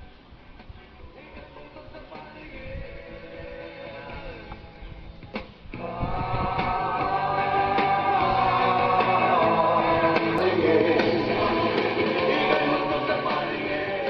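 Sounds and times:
song playing through speaker: 0.0 - 14.0.

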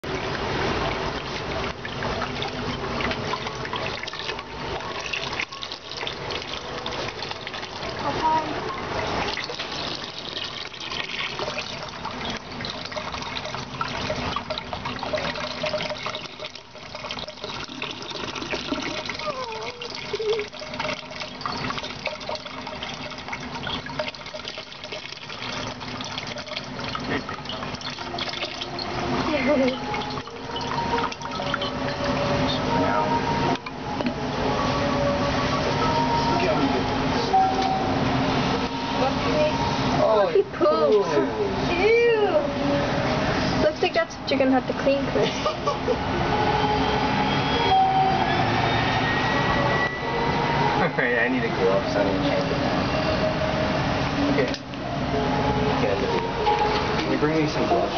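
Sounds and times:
hose water splashing into pot: 0.0 - 57.9.

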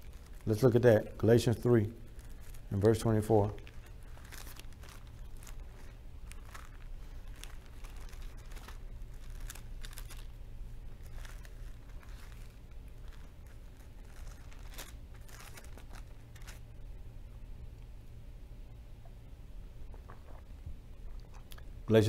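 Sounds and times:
steady low hum: 0.0 - 22.0
paper pages rustling: 2.2 - 10.4, 11.0 - 16.6.

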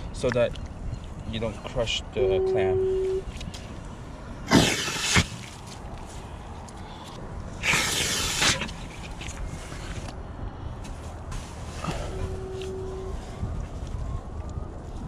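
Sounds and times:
wet sucking mud rushes: 4.5 - 5.6, 7.6 - 10.1.

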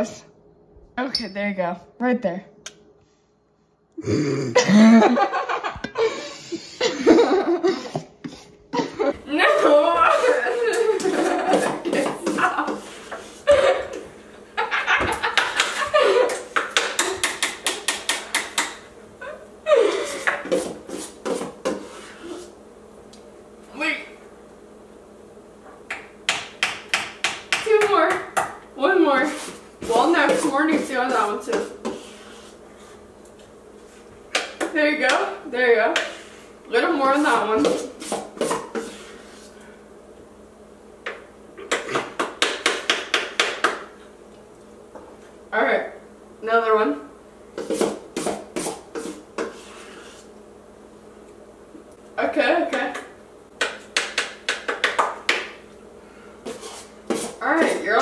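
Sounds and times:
laughter: 4.6 - 8.0, 8.7 - 9.2, 10.1 - 11.8, 13.5 - 16.5
utensil clacking against metal bowl: 16.6 - 18.8.

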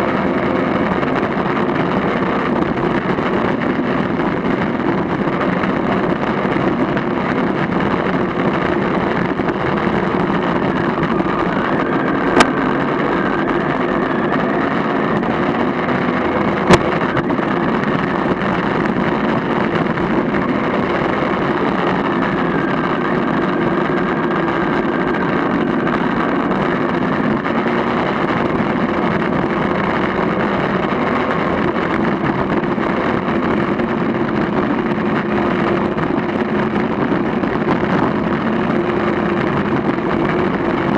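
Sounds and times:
vehicle engine on gravel: 0.0 - 40.9
wind on microphone: 0.0 - 40.9.

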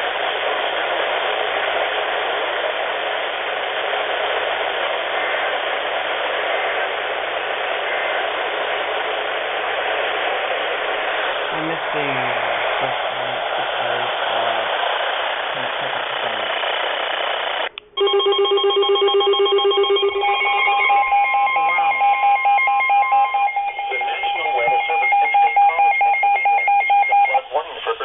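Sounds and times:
radio static hiss: 0.0 - 17.9, 23.2 - 28.0
fast pulsing electronic beeps: 17.4 - 27.6
steady alert tones: 17.8 - 27.4.

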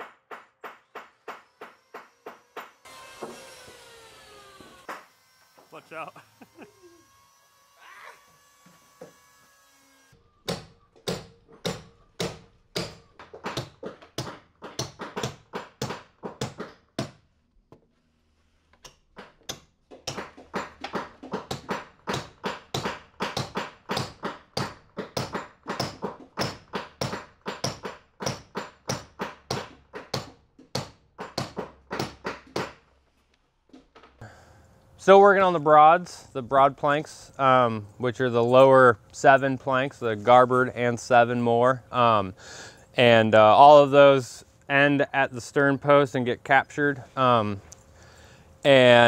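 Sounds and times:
hammer striking wooden hull: 19.2 - 32.8.

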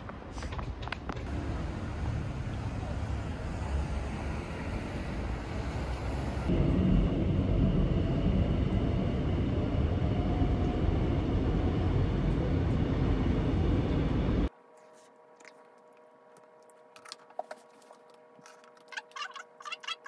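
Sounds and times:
street traffic: 0.0 - 14.5
subway train rumbling: 0.0 - 14.5.

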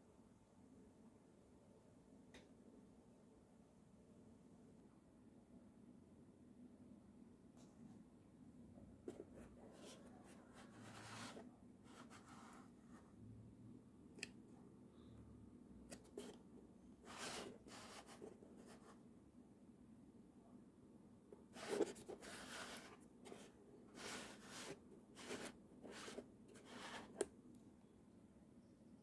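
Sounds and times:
cardboard box rubbing and scraping: 21.6 - 27.2.

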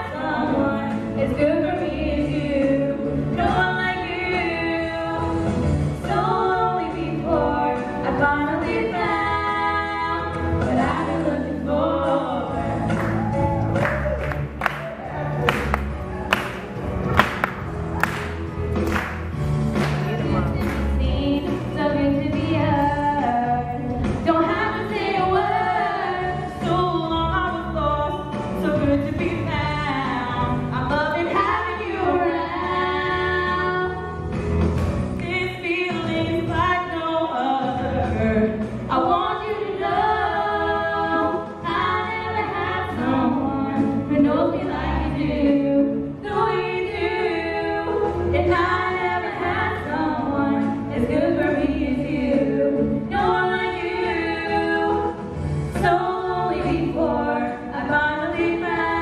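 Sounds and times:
girls singing a duet: 0.0 - 13.3, 21.0 - 34.2, 35.2 - 59.0.

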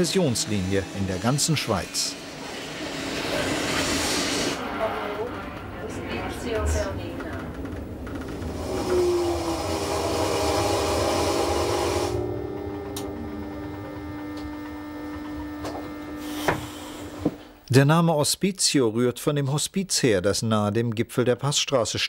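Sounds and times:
train running noise: 0.0 - 14.4
steady whining tone: 0.0 - 17.7.

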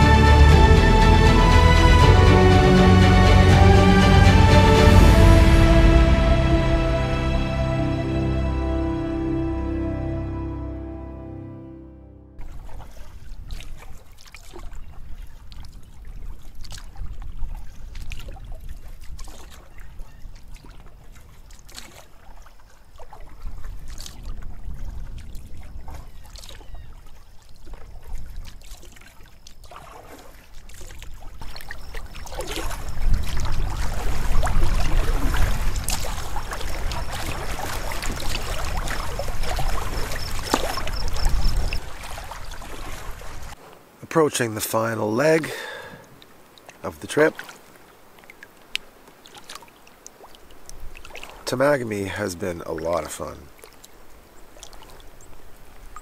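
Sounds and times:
canoe paddle strokes: 0.0 - 8.1, 12.4 - 56.0
low microphone rumble: 0.0 - 11.4
water lapping against hull: 12.4 - 56.0.

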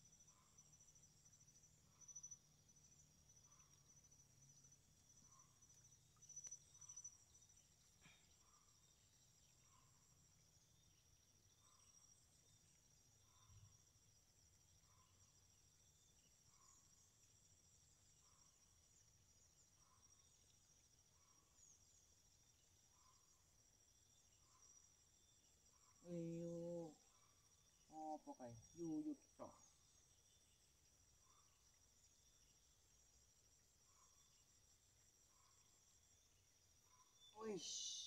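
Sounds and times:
soft insect chirp: 0.0 - 38.0
insect high thin trill: 36.9 - 38.0.

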